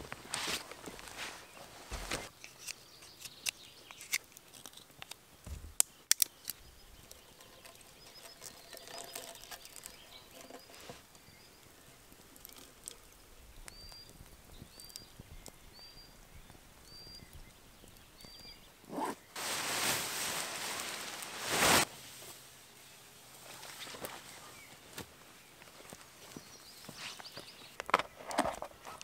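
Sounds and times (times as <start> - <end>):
wood snapping under knife: 2.4 - 5.2, 5.8 - 6.6.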